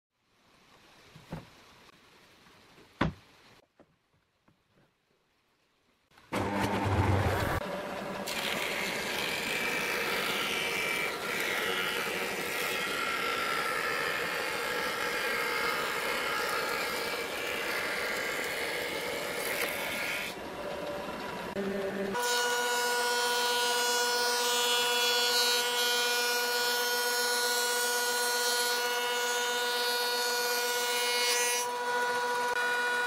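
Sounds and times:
board cut by jointer: 0:06.3 - 0:20.4, 0:21.6 - 0:33.0
jointer running with whine: 0:06.4 - 0:24.2.

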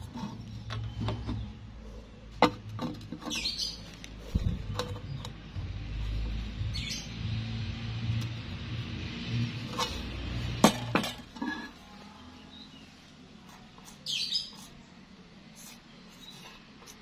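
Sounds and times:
marker pen scratching on steel: 0:13.5 - 0:14.9, 0:15.5 - 0:17.0.

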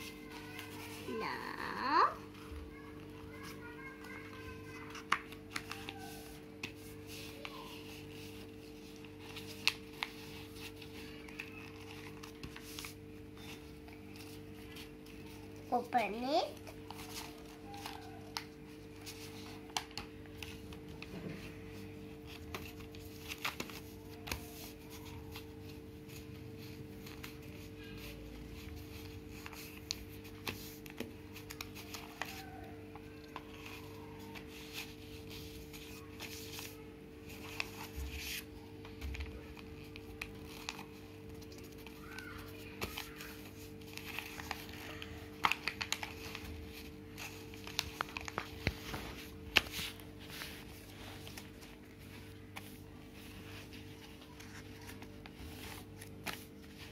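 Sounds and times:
paper crinkling and rustling: 0:00.0 - 0:56.9.

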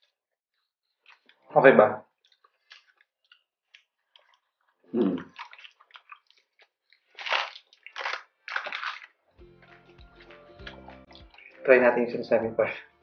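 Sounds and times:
chewing crisp food: 0:00.6 - 0:11.7
loud crunches: 0:05.0 - 0:09.3.

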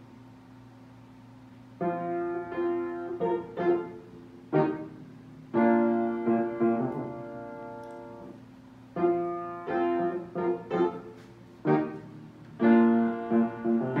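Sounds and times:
solo piano music: 0:01.8 - 0:14.0.

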